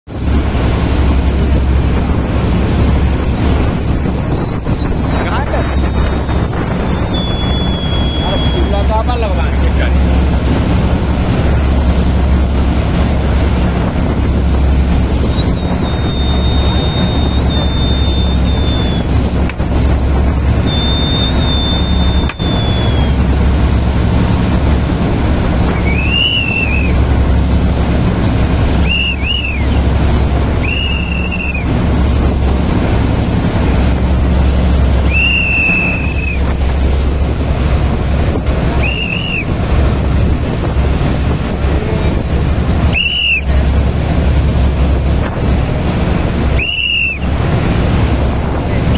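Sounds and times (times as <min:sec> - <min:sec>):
boat wake rushing: 0:00.1 - 0:48.9
motorboat engine humming: 0:00.1 - 0:48.9
wind on microphone: 0:00.1 - 0:48.9
high whistles: 0:04.3 - 0:08.9, 0:15.3 - 0:19.1, 0:20.6 - 0:23.2, 0:25.7 - 0:27.0, 0:28.7 - 0:29.8, 0:30.6 - 0:31.7, 0:35.0 - 0:36.6, 0:38.7 - 0:39.5, 0:42.9 - 0:43.6, 0:46.5 - 0:47.3.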